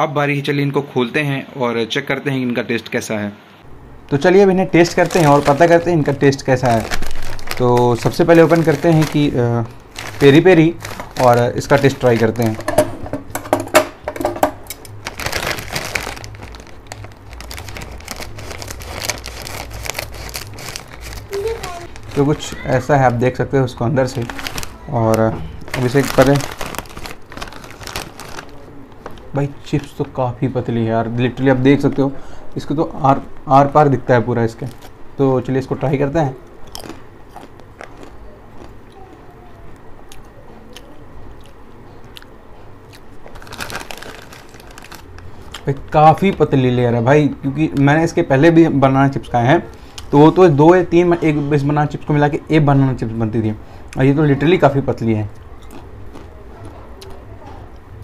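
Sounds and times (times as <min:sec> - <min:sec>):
foil snack packet crinkling: 0:04.2 - 0:12.8, 0:14.8 - 0:30.0, 0:43.2 - 0:46.4
person chewing crisp chips: 0:04.8 - 0:06.0, 0:06.6 - 0:12.6, 0:14.8 - 0:22.6, 0:25.6 - 0:29.3, 0:36.6 - 0:39.2, 0:40.1 - 0:45.8, 0:55.4 - 0:57.2.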